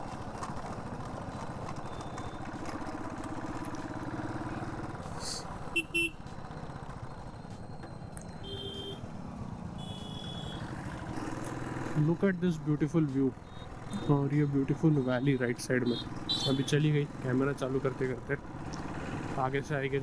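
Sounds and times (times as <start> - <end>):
motorcycle engine running: 0.0 - 15.0
vehicle horn beeps: 5.7 - 6.2, 8.4 - 9.0, 9.8 - 10.7, 13.4 - 16.8.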